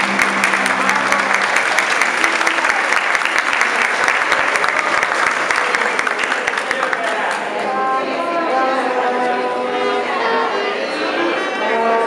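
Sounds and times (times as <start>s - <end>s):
live jazz music: 0.0s - 3.0s
audience applauding: 0.0s - 7.8s.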